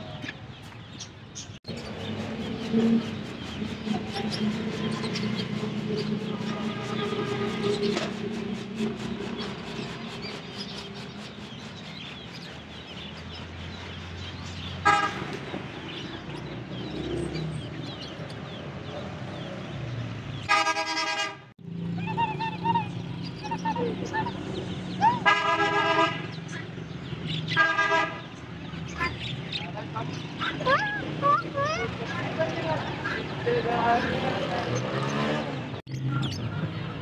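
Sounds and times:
caged birds chirping: 0.0 - 37.0
street hum: 0.0 - 37.0
vehicle horns honking: 6.3 - 8.1, 14.8 - 15.4, 20.5 - 21.5, 25.2 - 26.4, 27.5 - 28.4.

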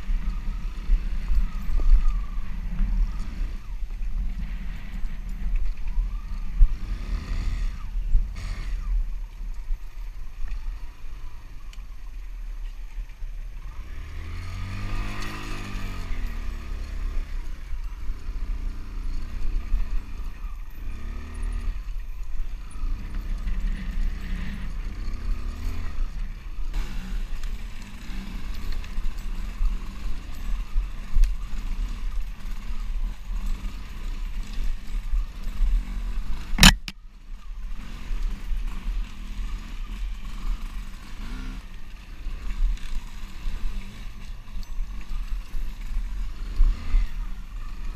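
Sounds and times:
motorcycle engine revving: 0.0 - 47.9.

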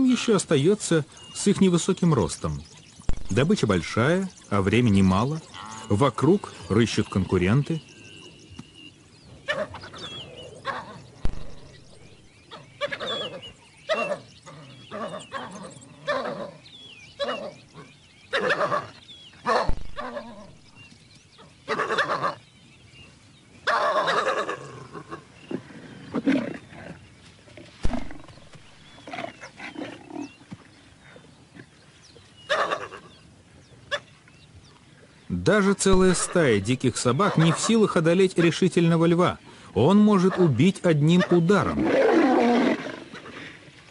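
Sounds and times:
lion growling and snarling: 9.4 - 20.6, 23.7 - 30.4, 41.2 - 43.5.

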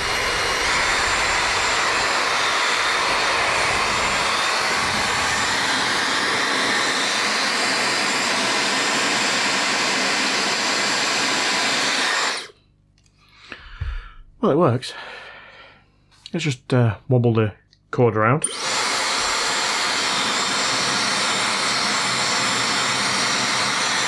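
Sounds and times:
hair dryer running: 0.0 - 12.6, 18.4 - 24.0.

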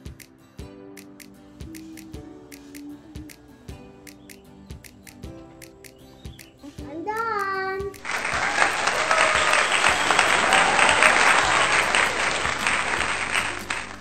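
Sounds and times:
child's voice: 6.6 - 8.0
crowd applause: 8.0 - 14.0.

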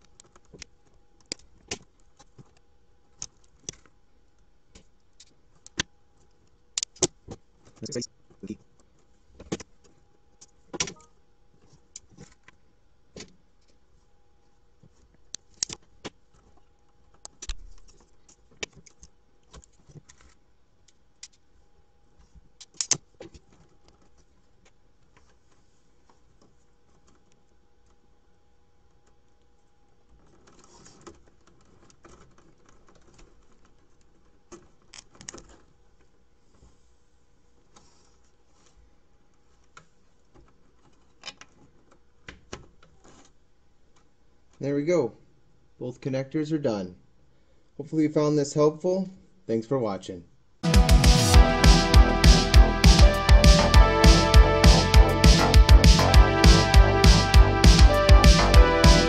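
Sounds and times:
faint steady hum: 0.0 - 50.6
soft rustle: 21.4 - 44.6.

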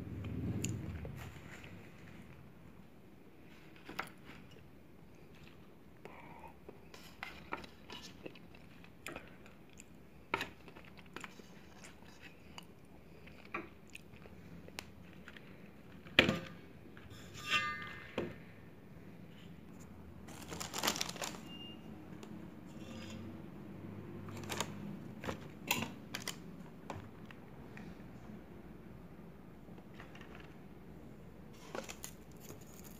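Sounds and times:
vegetables clicking and crunching: 20.3 - 21.5.

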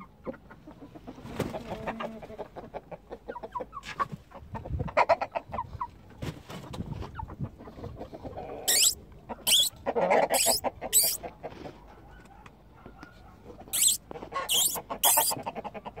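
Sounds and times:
lower fuller squawk: 8.7 - 9.7, 10.3 - 11.2, 13.8 - 15.4
poultry squeaky calls: 8.7 - 9.7, 10.3 - 11.2, 13.8 - 15.4.

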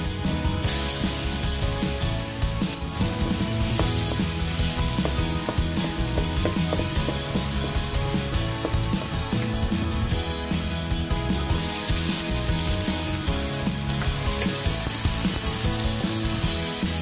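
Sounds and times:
garlic sizzling in hot oil: 0.6 - 10.1, 11.1 - 17.0
wooden spatula stirring in wok: 1.6 - 9.6.

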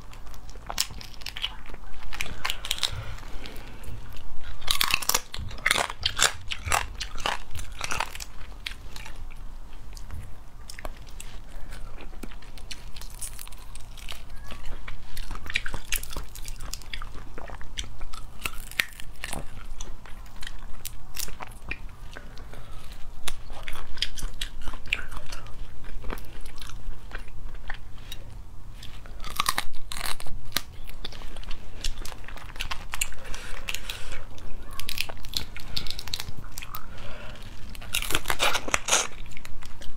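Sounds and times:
chewing: 0.0 - 39.9
crayfish shells cracking: 4.5 - 9.2, 17.8 - 21.4, 29.2 - 36.8, 37.6 - 39.9.

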